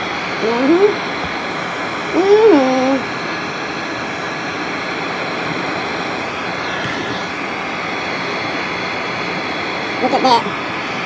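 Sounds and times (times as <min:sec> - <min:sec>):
heat gun blowing air: 0:00.0 - 0:11.0.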